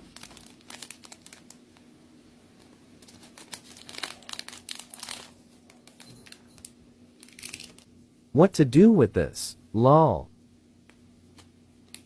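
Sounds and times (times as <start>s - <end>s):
plastic wrapping crinkling: 0.0s - 1.6s, 3.0s - 6.5s, 7.2s - 7.9s.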